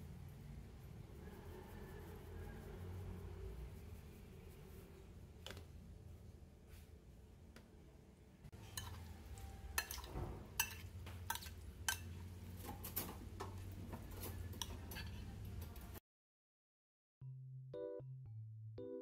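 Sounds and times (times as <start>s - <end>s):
spoon clinking and scraping glass bowl: 8.5s - 13.0s, 14.2s - 15.4s.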